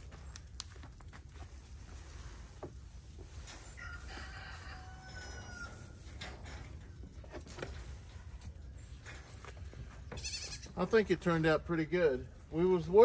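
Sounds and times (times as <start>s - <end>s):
rooster crowing: 3.8s - 6.0s.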